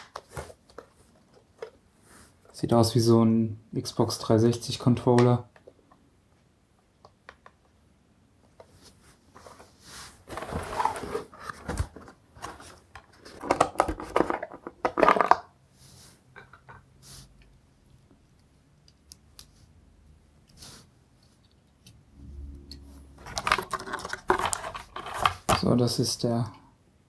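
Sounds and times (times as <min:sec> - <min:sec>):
cardboard rustling and scraping: 0:08.7 - 0:14.5, 0:23.2 - 0:25.6.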